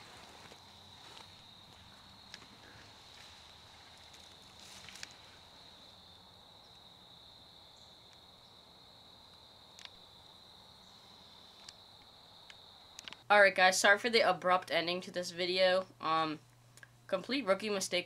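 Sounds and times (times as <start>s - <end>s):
high-pitched insect chorus: 0.0s - 13.2s.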